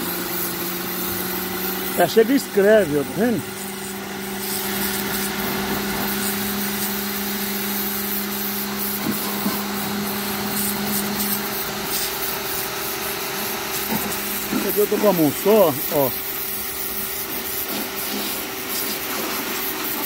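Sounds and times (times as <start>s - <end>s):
pressure washer motor hum: 0.0s - 20.0s
water jet spraying onto tiles: 0.0s - 20.0s.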